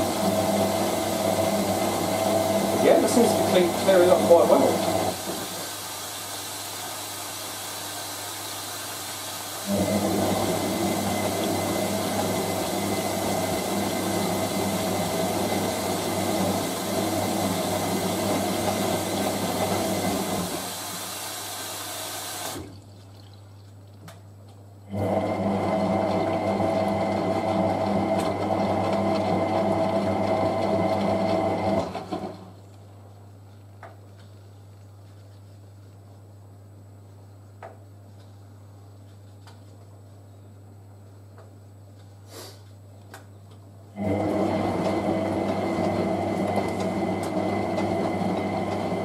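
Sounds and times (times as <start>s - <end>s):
water hissing into machine: 0.0s - 22.7s
washing machine drum turning: 9.7s - 20.8s.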